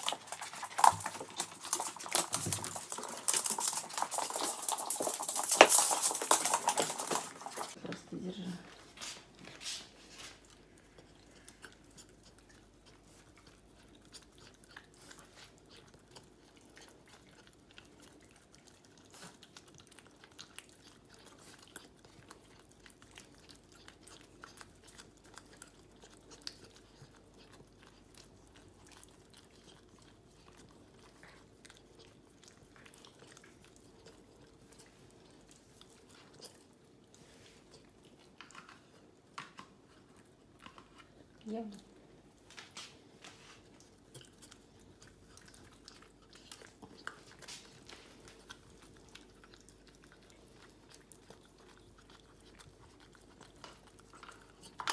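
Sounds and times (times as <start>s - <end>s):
puppy licking and chewing: 0.0s - 54.9s.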